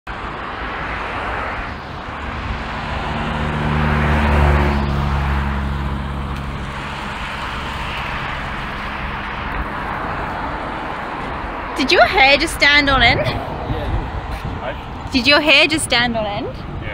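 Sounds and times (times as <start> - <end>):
low engine hum: 0.1 - 15.1.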